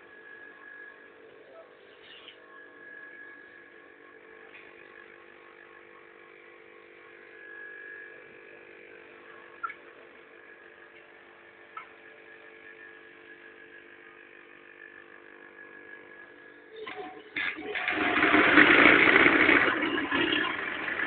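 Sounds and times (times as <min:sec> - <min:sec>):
machine hum and whine: 0:00.0 - 0:21.0.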